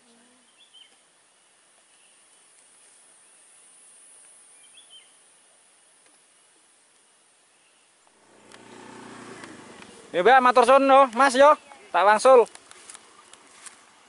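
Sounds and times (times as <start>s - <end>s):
bird chirps: 0.0s - 2.2s, 4.6s - 5.2s.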